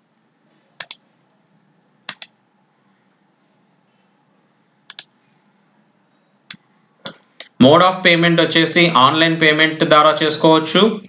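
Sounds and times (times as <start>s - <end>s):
computer input clicks: 0.8s - 1.0s, 2.1s - 2.4s, 4.9s - 5.1s.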